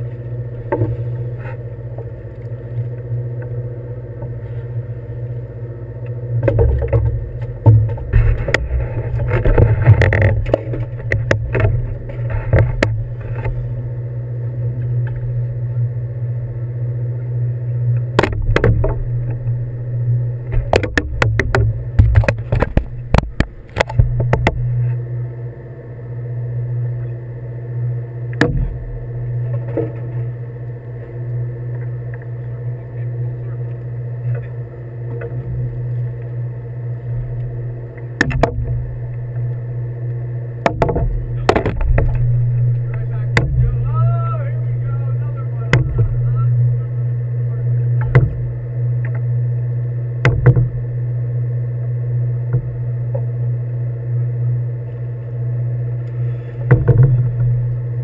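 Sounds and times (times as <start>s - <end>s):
boat engine humming: 0.0s - 58.0s
sharp knocks and clatter: 40.6s - 42.4s.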